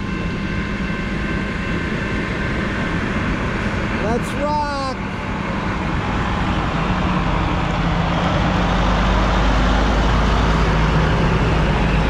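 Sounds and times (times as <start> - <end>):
truck diesel engine passing: 2.4 - 12.0.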